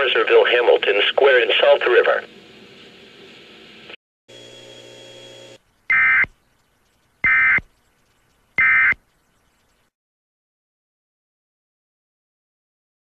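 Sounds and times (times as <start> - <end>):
steady hum and hiss: 0.0 - 9.9
buzzy digital data tones: 4.3 - 6.4, 7.2 - 7.7, 8.6 - 9.0.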